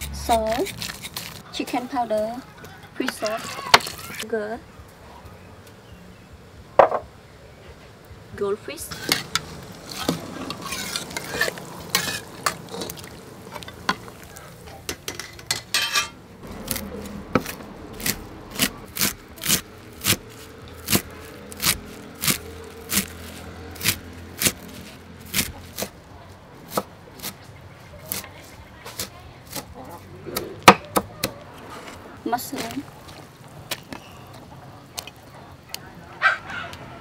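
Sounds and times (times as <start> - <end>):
ladle scraping metal colander: 8.8 - 14.0.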